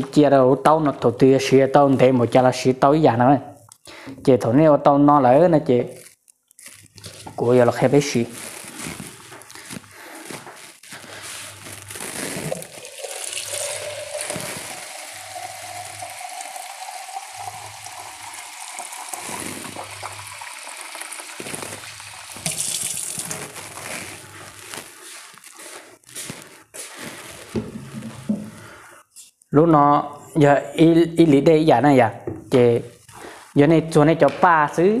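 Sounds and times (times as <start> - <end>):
water running into a plastic cup: 11.9 - 24.2.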